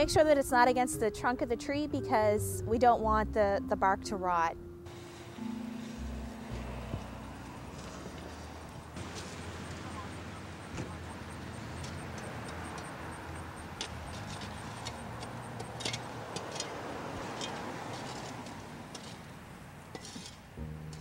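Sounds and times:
engine droning: 0:04.8 - 0:21.0
mulch scraping: 0:04.9 - 0:12.5, 0:13.8 - 0:19.3, 0:19.9 - 0:20.5.

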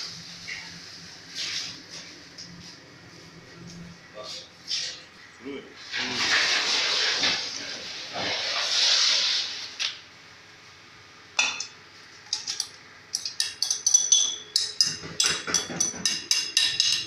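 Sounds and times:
spoon clinking and scraping plate: 0:13.2 - 0:17.0.

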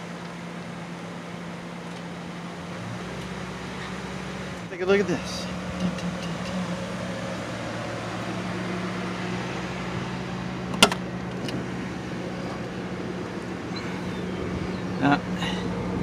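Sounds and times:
car engine idling: 0:00.0 - 0:16.0
car door opening click: 0:10.7 - 0:11.6.

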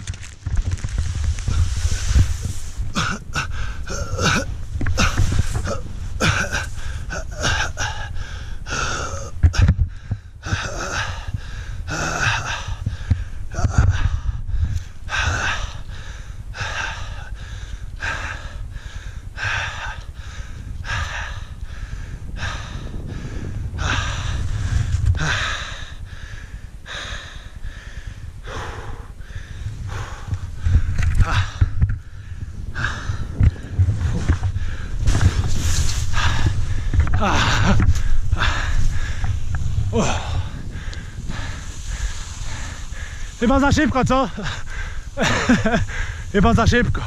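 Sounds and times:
wind rumbling on microphone: 0:00.0 - 0:47.0
person gasping and wheezing: 0:02.8 - 0:14.4, 0:29.9 - 0:33.5, 0:36.1 - 0:43.4.

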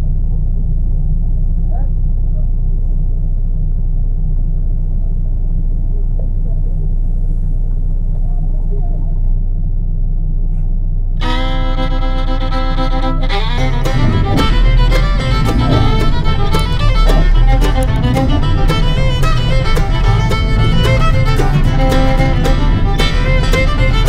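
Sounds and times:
truck engine rumbling: 0:00.0 - 0:24.0
upbeat fiddle music: 0:11.2 - 0:24.0.

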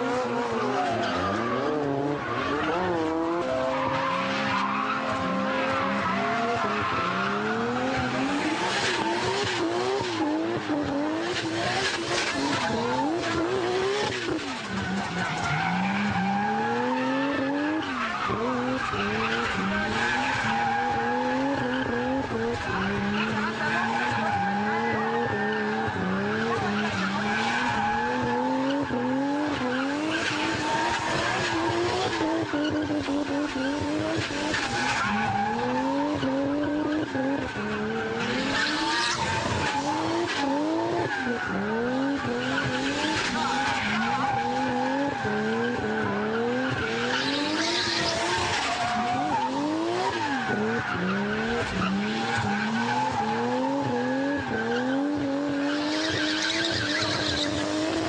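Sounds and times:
car engine revving: 0:00.0 - 0:58.0
tyres spinning and screeching: 0:00.0 - 0:58.0.

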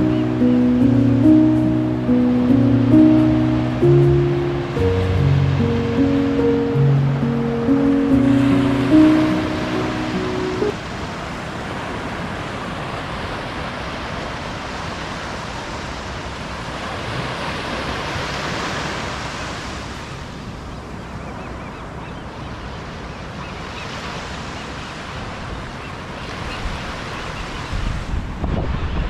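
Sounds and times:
ocean surf washing onto shore: 0:00.0 - 0:21.0.

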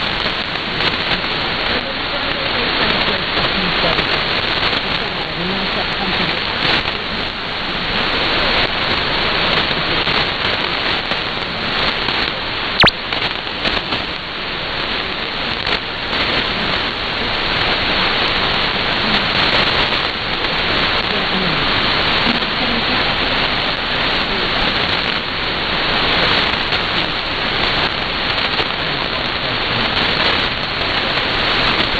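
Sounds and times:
radio receiver hiss and static: 0:00.0 - 0:31.9
weak radio broadcast: 0:00.0 - 0:31.9
sharp click: 0:12.8 - 0:13.0.

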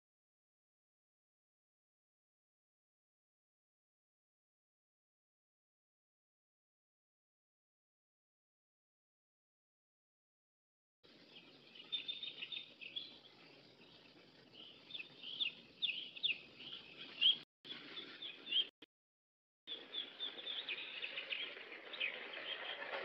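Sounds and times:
birds chirping: 0:11.1 - 0:18.8, 0:19.7 - 0:23.0.

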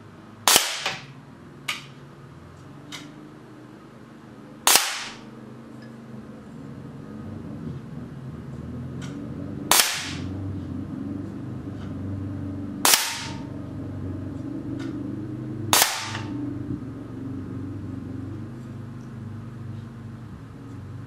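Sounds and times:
air cannon firing sharp cracks: 0:00.4 - 0:01.1, 0:04.7 - 0:05.2, 0:09.7 - 0:10.3, 0:12.8 - 0:13.4, 0:15.7 - 0:16.3.

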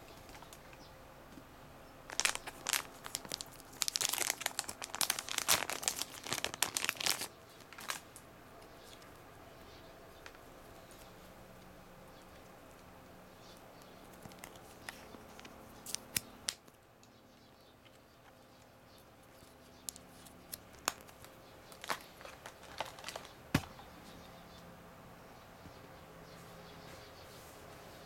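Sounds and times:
light clicks of wires and packaging: 0:00.1 - 0:01.4, 0:02.1 - 0:09.2, 0:10.2 - 0:17.2, 0:17.8 - 0:23.8.

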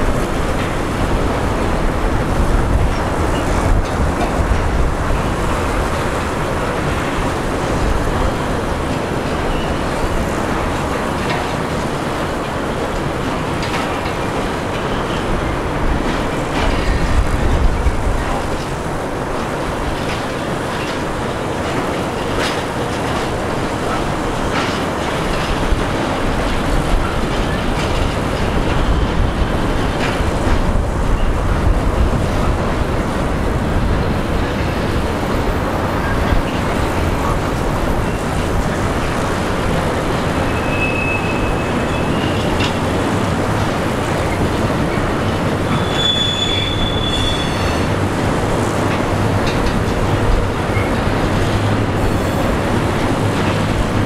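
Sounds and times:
freight train rolling past: 0:00.0 - 0:54.0
high-pitched wheel squeals: 0:40.4 - 0:42.5, 0:45.7 - 0:47.9.

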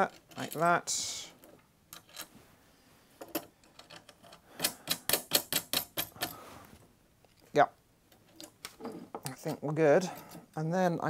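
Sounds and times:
metal hardware clicking: 0:03.3 - 0:06.4.

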